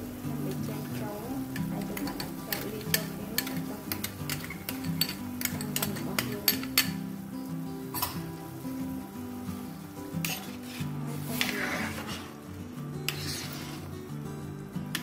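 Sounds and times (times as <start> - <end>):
slow background music: 0.0 - 15.0.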